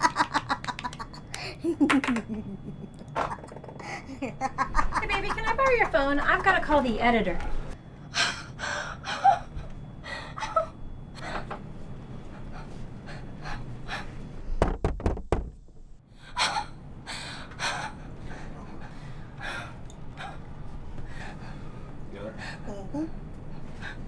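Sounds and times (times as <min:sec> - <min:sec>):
woman panting and gasping: 0:08.1 - 0:11.5
knocks on wooden door: 0:14.6 - 0:15.6.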